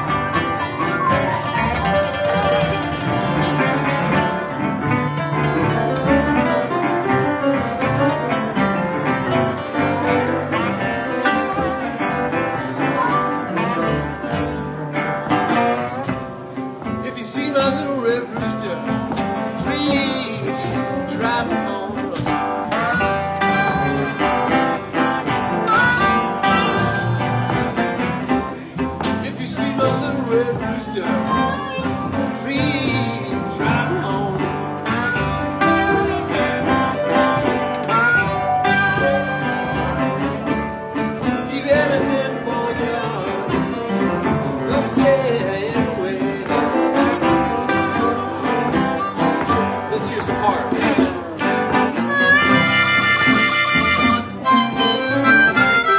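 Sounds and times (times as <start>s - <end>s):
harmonica wailing: 0.0s - 6.7s, 22.8s - 27.9s, 30.8s - 33.2s, 34.7s - 40.8s, 47.5s - 50.7s, 51.9s - 55.9s
acoustic guitars strumming: 0.0s - 55.9s
congas and drums: 0.0s - 55.9s
live blues band: 0.0s - 55.9s.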